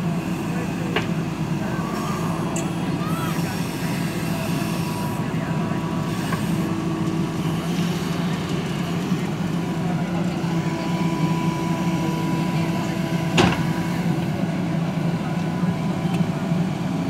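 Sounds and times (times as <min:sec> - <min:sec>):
diesel engine under load: 0:00.0 - 0:17.0.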